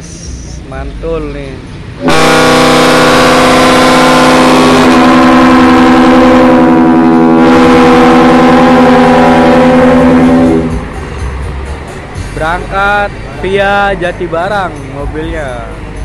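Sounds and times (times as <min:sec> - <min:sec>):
loud air horn chord: 0:02.0 - 0:11.0.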